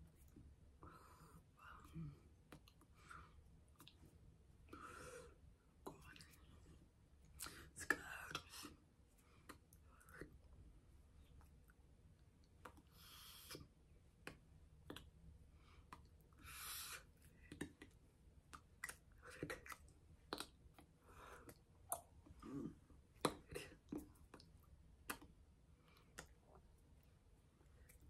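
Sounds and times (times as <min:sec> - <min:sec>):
soft clicks of hands and mouth: 0:01.7 - 0:04.1, 0:05.8 - 0:06.5, 0:07.4 - 0:10.6, 0:11.2 - 0:16.3, 0:17.0 - 0:22.4, 0:23.2 - 0:28.0.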